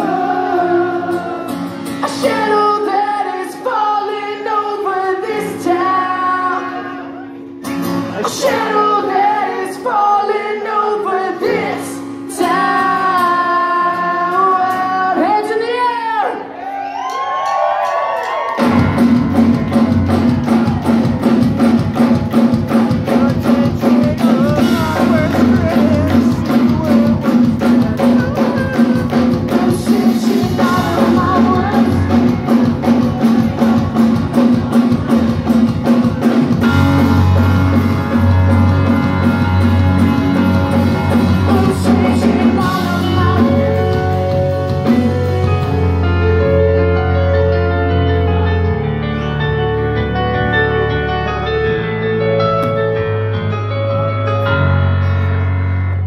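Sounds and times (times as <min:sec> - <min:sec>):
live rock band playing loud: 0:07.4 - 0:09.9, 0:18.4 - 0:56.0
busy drumming: 0:18.4 - 0:46.0
long held bass notes: 0:36.5 - 0:56.0.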